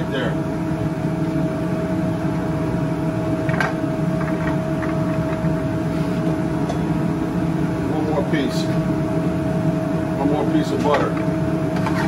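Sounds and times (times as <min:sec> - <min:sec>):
kitchen drone with whining tone: 0:00.0 - 0:12.0.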